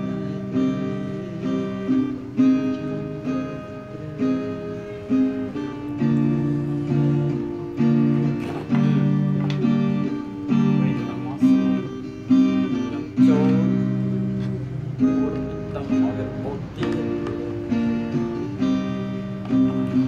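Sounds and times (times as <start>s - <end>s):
acoustic guitar strumming chords: 0.0s - 20.0s.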